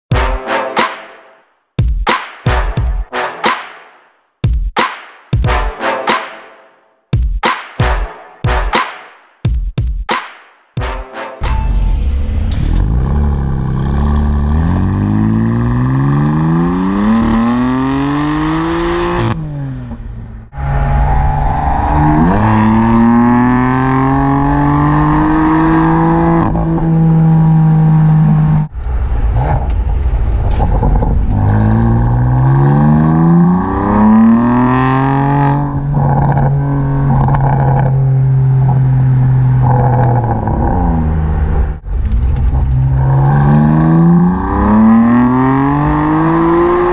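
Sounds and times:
car exhaust accelerating hard: 0:12.1 - 0:46.9.

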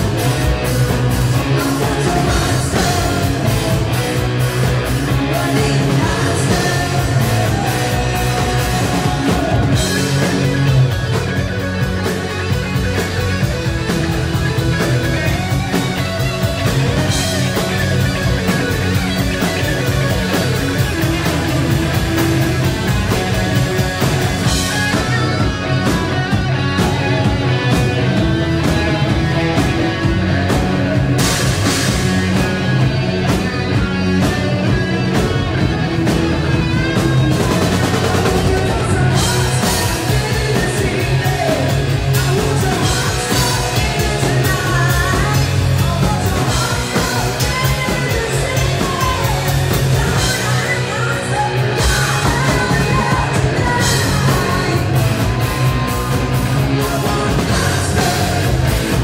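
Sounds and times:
rock band playing live: 0:00.0 - 0:59.0
person singing: 0:01.4 - 0:04.1, 0:05.0 - 0:10.5, 0:37.0 - 0:59.0.

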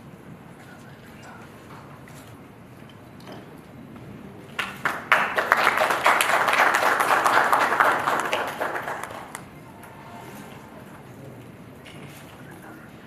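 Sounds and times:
applause: 0:04.5 - 0:09.6.

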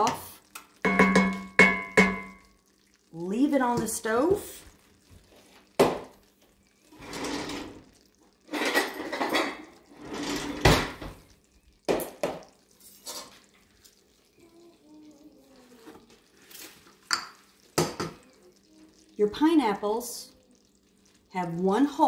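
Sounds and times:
dishes and utensils clattering: 0:07.0 - 0:11.2, 0:12.7 - 0:13.5.

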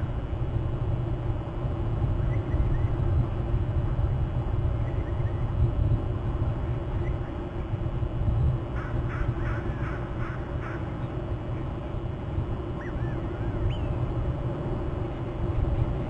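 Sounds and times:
steady low rumble: 0:00.0 - 0:16.0
bird harsh calls: 0:08.8 - 0:11.1.

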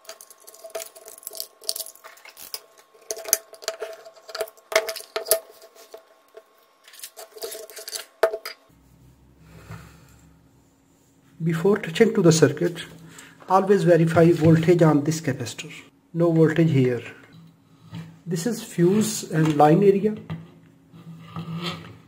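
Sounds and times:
metal case clinking and scraping: 0:00.0 - 0:08.6
faint low hum: 0:00.0 - 0:22.0.

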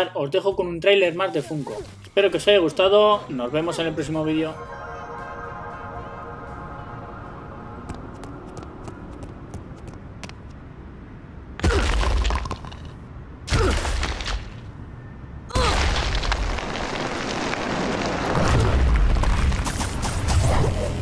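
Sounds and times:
falling debris: 0:11.6 - 0:12.9, 0:15.5 - 0:20.0
concrete cracking and crumbling: 0:11.6 - 0:13.0, 0:15.6 - 0:19.8
floor caving in rumbling crash: 0:15.6 - 0:20.0.

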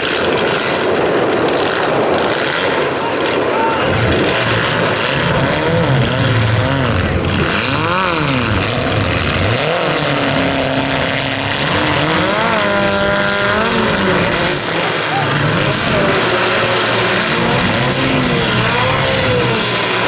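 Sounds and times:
car engines revving: 0:00.0 - 0:20.0
steady background noise: 0:00.0 - 0:20.0.

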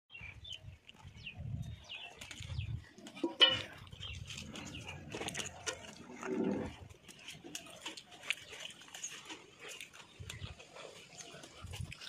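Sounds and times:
animal grunt: 0:04.4 - 0:07.0.

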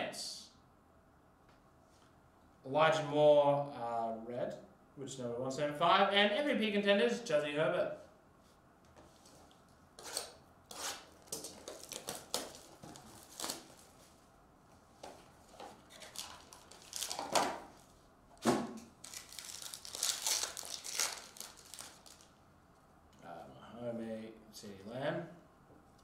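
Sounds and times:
foil pack tearing: 0:10.9 - 0:13.9, 0:15.9 - 0:17.6, 0:19.0 - 0:22.3
foil crinkling: 0:11.2 - 0:14.1, 0:15.5 - 0:17.6, 0:19.0 - 0:22.3.

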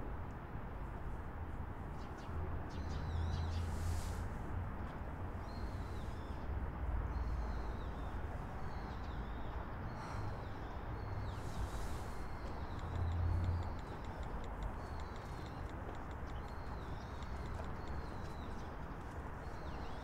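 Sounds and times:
small birds chirping: 0:07.1 - 0:20.0.

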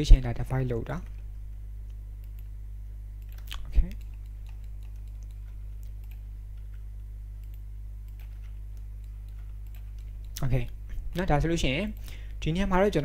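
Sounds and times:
low electrical hum: 0:00.0 - 0:13.0
computer mouse and keyboard clicks: 0:03.2 - 0:12.1.

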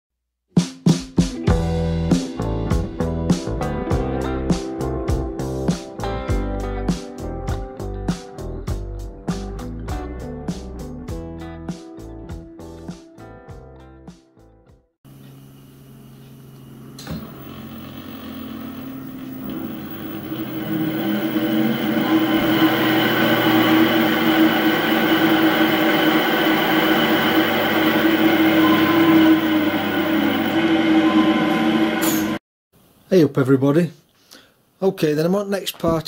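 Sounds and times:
electric hub motor whining: 0:15.2 - 0:32.4.

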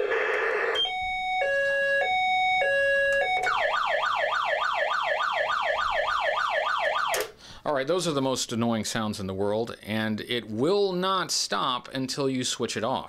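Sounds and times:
fast warbling siren: 0:00.0 - 0:07.2
two-tone hi-lo siren: 0:00.0 - 0:07.2.

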